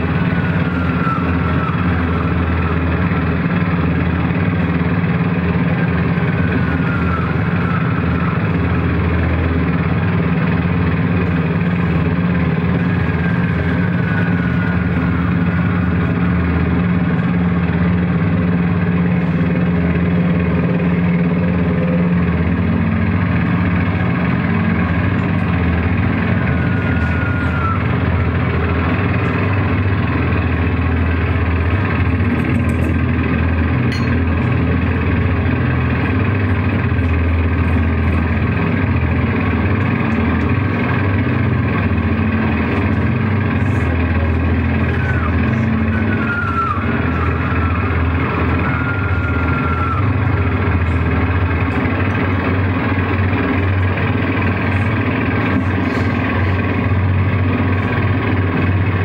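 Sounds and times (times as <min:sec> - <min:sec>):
ambient electric guitar drone: 0:00.0 - 0:59.0.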